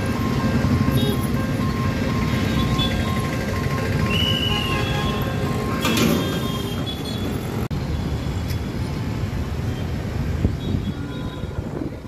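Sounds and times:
street traffic noise: 0:00.0 - 0:12.0.

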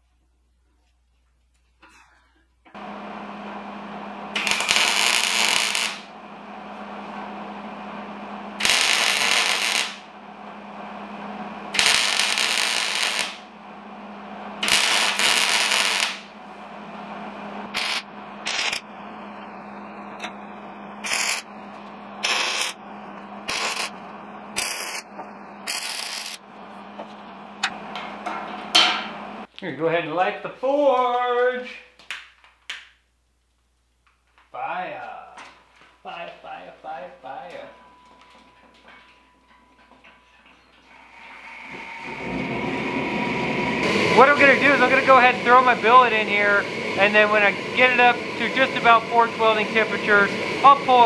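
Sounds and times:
welder humming: 0:02.7 - 0:29.5, 0:40.8 - 0:51.0
crackling welding arc: 0:04.3 - 0:06.2, 0:08.5 - 0:10.2, 0:11.6 - 0:13.6, 0:14.6 - 0:16.4, 0:17.7 - 0:19.0, 0:20.0 - 0:28.0, 0:43.8 - 0:51.0.

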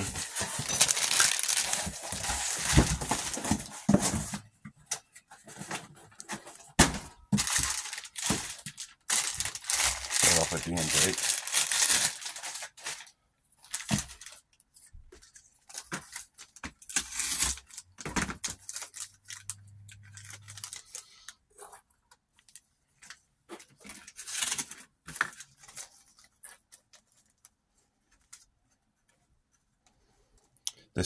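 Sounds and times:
plastic packaging crinkling: 0:00.0 - 0:04.3, 0:07.2 - 0:14.5, 0:15.6 - 0:21.4.

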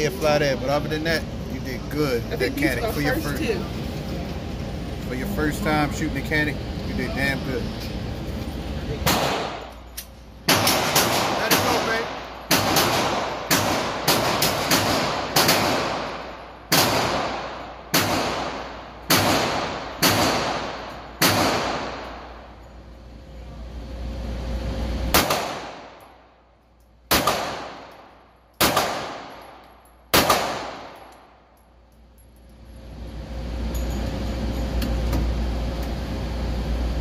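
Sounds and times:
pistol shots echoing indoors: 0:10.5 - 0:22.3, 0:25.1 - 0:26.0, 0:27.1 - 0:31.3.

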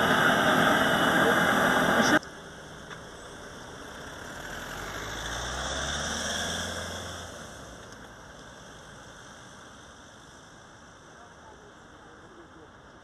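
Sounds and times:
vehicle engine running: 0:00.0 - 0:09.0.

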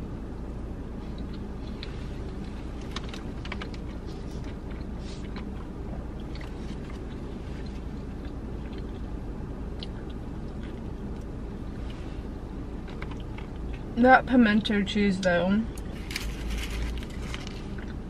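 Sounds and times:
steady low hum: 0:00.0 - 0:18.0
person chewing with mouth smacks: 0:01.0 - 0:12.0, 0:15.7 - 0:18.0.

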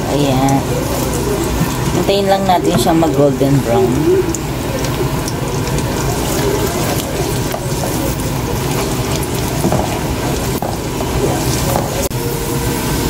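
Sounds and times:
garlic sizzling in hot oil: 0:00.0 - 0:13.0.

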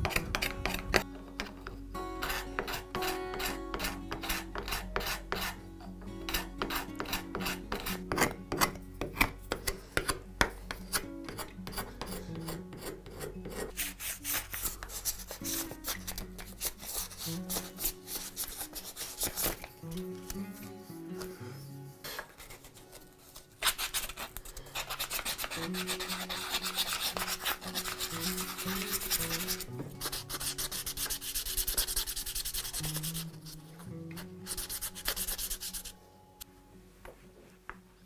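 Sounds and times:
sandpaper rasping on wood: 0:02.2 - 0:05.6, 0:06.3 - 0:08.4, 0:10.9 - 0:19.5, 0:23.6 - 0:33.4, 0:34.4 - 0:35.9.

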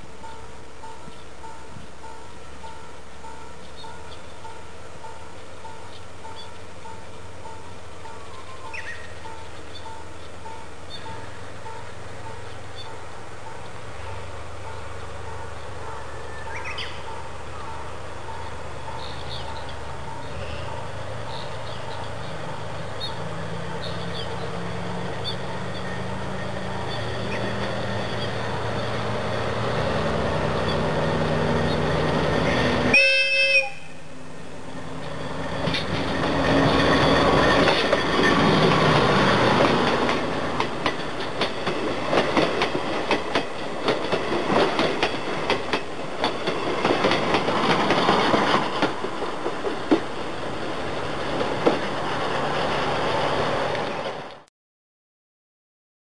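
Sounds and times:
diesel locomotive engine running: 0:00.0 - 0:54.4
locomotive horn blast: 0:32.4 - 0:34.1
wheels clattering over rail joints: 0:35.1 - 0:54.3.

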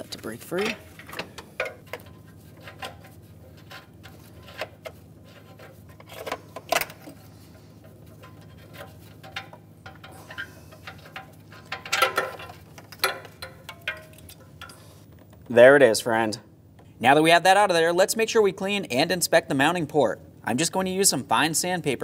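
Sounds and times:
small metal clicks and knocks: 0:08.1 - 0:15.5.

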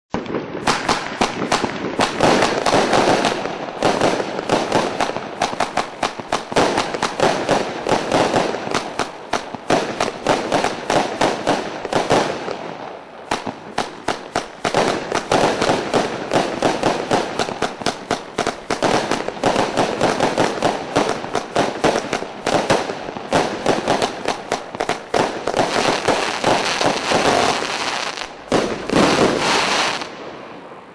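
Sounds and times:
fireworks launching and banging: 0:00.1 - 0:30.9.

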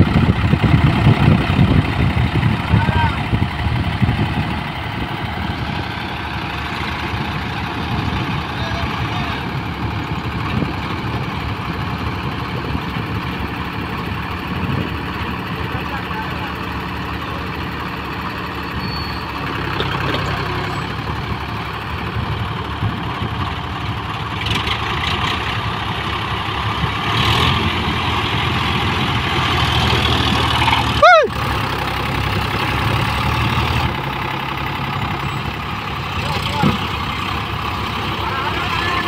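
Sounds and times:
diesel tractors running under load: 0:00.0 - 0:39.0
sharp high squeal: 0:18.6 - 0:19.4.

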